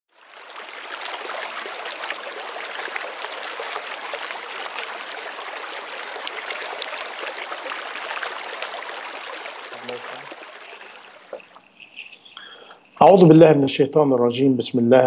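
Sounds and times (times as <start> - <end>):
babbling stream: 0.1 - 11.9.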